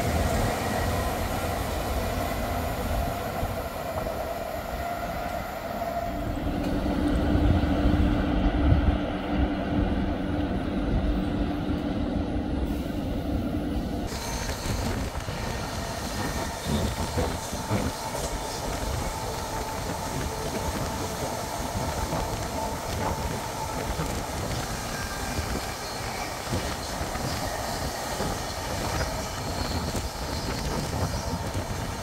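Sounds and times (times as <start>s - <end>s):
train wheels rumbling on rail: 0.0s - 32.0s
faint steady squeal: 14.1s - 32.0s.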